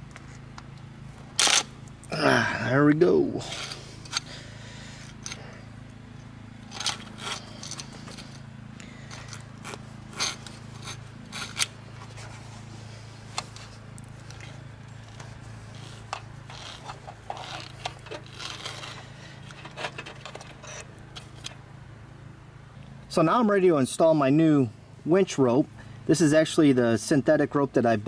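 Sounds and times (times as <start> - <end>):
parts scraping and clicking: 0.0 - 2.1, 3.4 - 21.6
steady low hum: 0.0 - 28.0.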